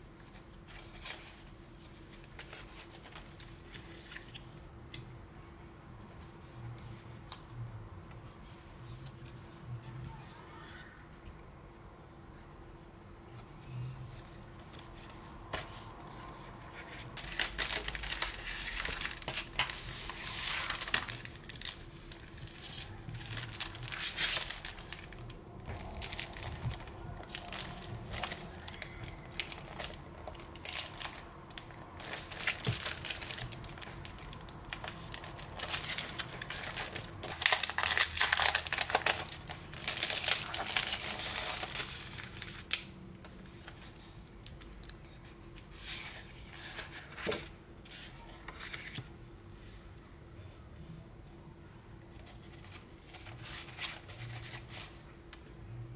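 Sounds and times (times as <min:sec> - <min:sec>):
cellophane crinkling: 0:17.0 - 0:42.9.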